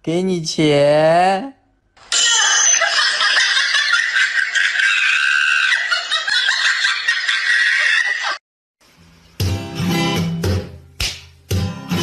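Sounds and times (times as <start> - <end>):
shrill high-pitched giggling: 2.2 - 8.4.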